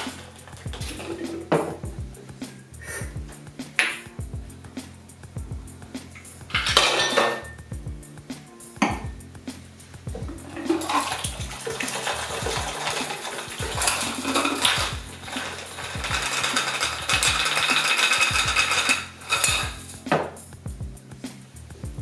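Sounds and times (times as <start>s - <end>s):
ice rattling in metal shaker: 0.0s - 1.6s, 6.5s - 7.6s, 10.4s - 20.0s
drink pouring into glass: 10.5s - 19.6s.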